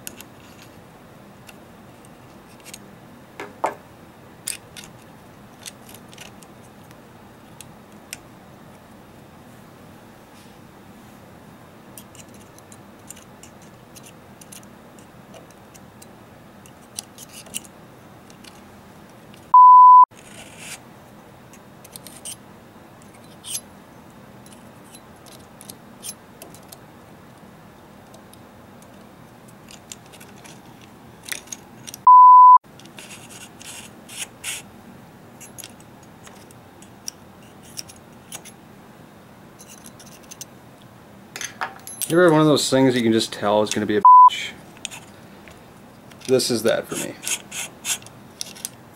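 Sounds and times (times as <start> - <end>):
small metal parts clicking: 12.0 - 17.7
censor bleeps: 19.5 - 20.1, 32.1 - 32.6, 44.0 - 44.4.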